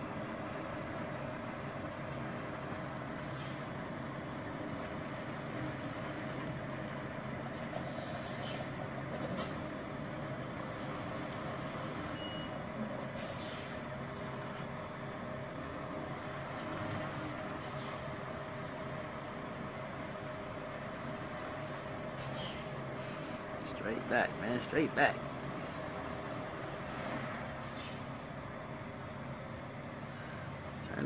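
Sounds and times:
truck diesel engine running: 0.0 - 31.0
air brake hisses: 13.1 - 13.8, 21.6 - 22.7, 27.6 - 28.2.

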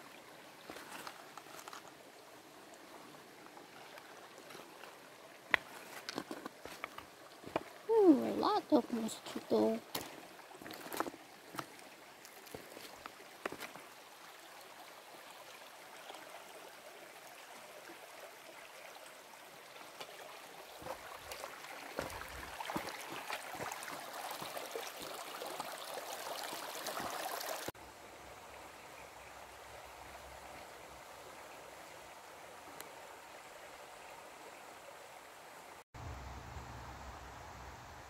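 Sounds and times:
stream water flowing: 0.0 - 38.0.

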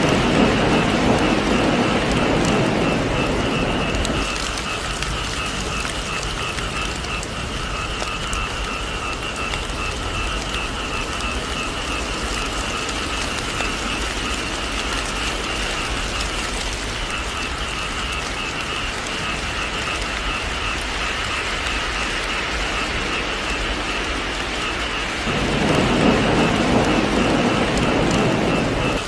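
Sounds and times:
rain dripping off a roof: 0.0 - 29.0.

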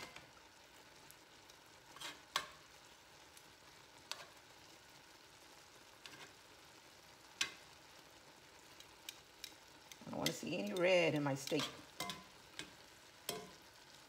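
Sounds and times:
meat sizzling in a skillet: 0.0 - 14.0
metal tongs clicking on pan: 2.0 - 2.6, 7.4 - 7.7, 8.7 - 13.7.

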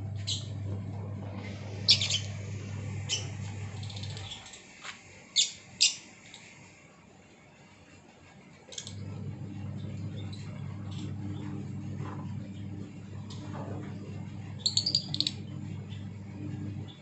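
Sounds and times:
steady low hum: 0.0 - 17.0
lovebirds chirping: 1.4 - 4.5, 14.6 - 16.1.

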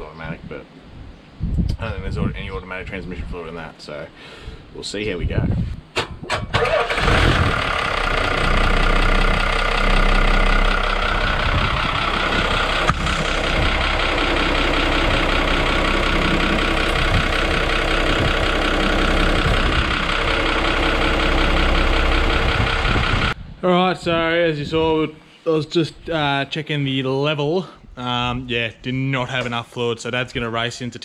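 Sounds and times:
diesel truck engine idling: 6.6 - 23.4.

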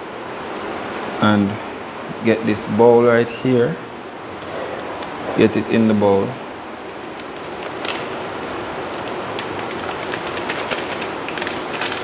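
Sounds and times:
plastic packet crinkling: 7.0 - 12.0.

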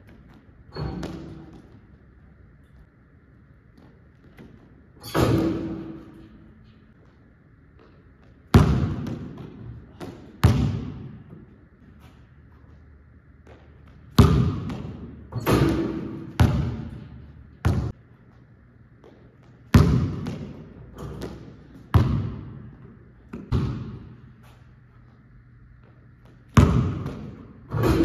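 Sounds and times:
basketball bouncing on gym floor: 0.0 - 2.8, 3.7 - 6.4, 7.0 - 12.8, 13.4 - 24.7, 25.6 - 28.0
ball hitting rim and backboard: 0.1 - 1.8, 3.8 - 6.4, 8.5 - 11.4, 13.4 - 17.9, 19.0 - 24.3, 26.2 - 28.0.

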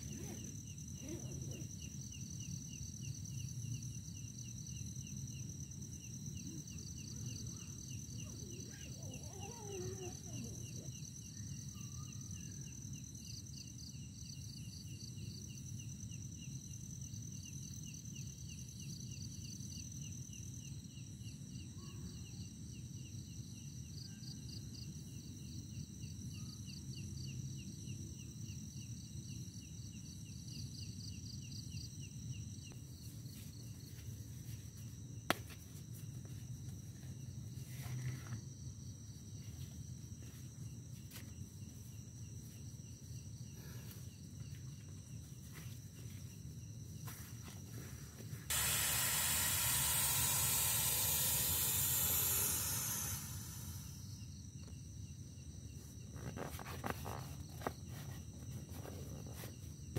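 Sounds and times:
insects chirping: 0.0 - 59.9
loud steady hiss: 48.5 - 54.3.

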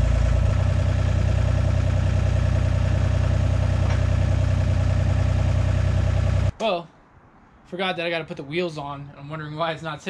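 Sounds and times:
skid steer loader engine running: 0.0 - 6.5.

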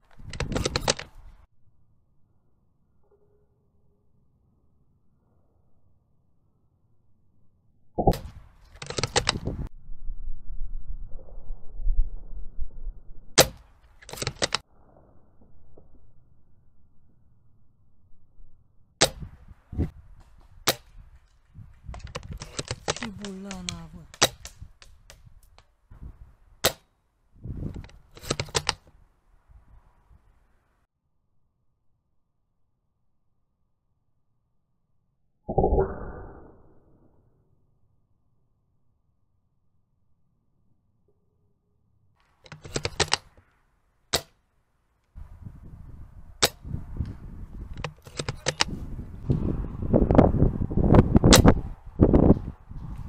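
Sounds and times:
short low rumble: 9.4 - 13.4
airsoft gun cracks: 13.4 - 14.6, 20.2 - 25.7, 26.6 - 26.9, 44.1 - 44.4, 46.4 - 46.7
heavy rumbling on microphone: 48.7 - 53.0.

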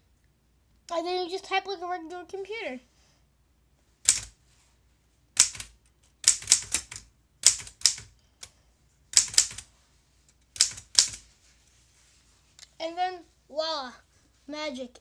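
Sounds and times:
typewriter key clacks: 9.2 - 9.6, 10.6 - 11.2.

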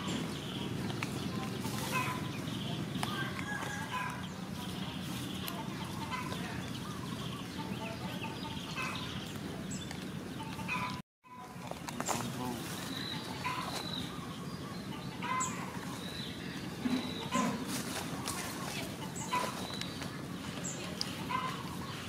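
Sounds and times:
birds clucking and chirping: 0.0 - 22.0.

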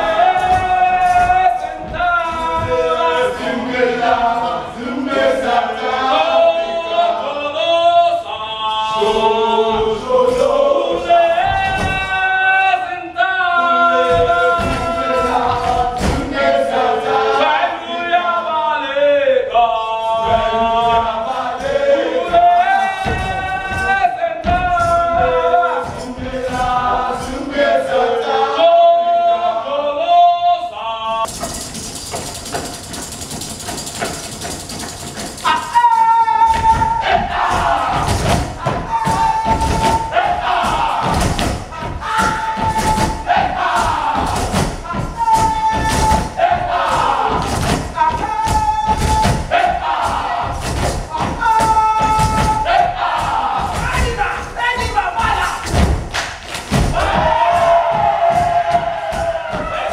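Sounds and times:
feet stomping on stage floor: 0.0 - 4.3, 9.6 - 12.5, 14.0 - 16.8, 20.2 - 27.2, 36.4 - 59.9
group of voices singing: 0.0 - 31.5, 35.2 - 59.9
voices chanting a shout: 35.4 - 59.9.

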